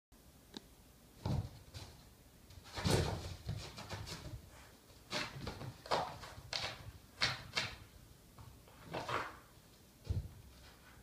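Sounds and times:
dog scuffling and thudding: 1.2 - 7.8.

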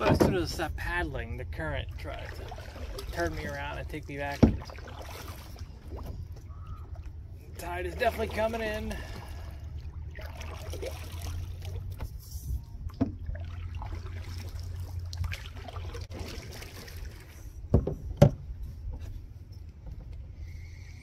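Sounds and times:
water trickling and dripping: 1.7 - 17.4
paddle strokes in water: 2.0 - 17.7
knocks on canoe: 17.7 - 18.4.

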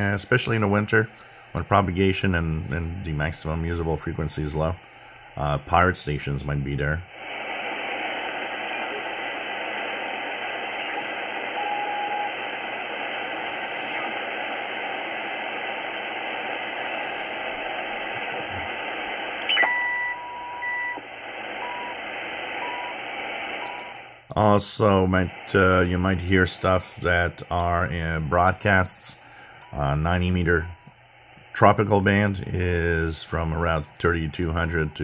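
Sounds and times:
radio static hiss: 0.0 - 35.0
radio whistle: 7.2 - 24.0.

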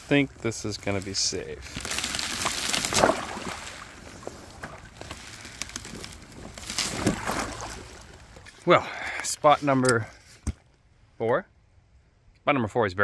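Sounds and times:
boots splashing through icy water: 0.8 - 8.6.

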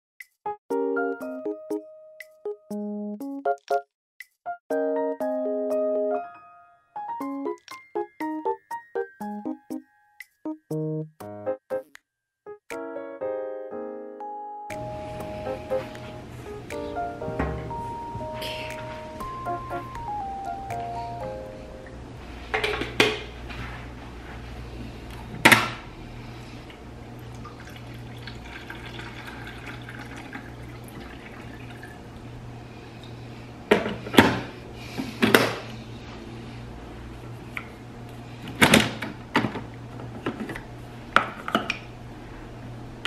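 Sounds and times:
steady low hum: 14.7 - 43.0
water pouring into reservoir: 27.3 - 32.1.

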